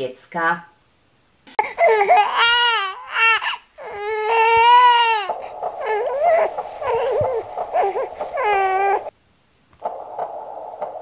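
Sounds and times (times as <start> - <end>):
steady hiss: 0.8 - 11.0
baby crying: 1.6 - 9.1.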